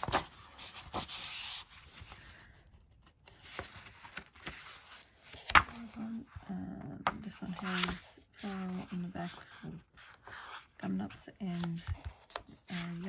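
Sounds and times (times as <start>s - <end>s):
card paper rustling: 0.0s - 6.2s, 7.1s - 10.7s.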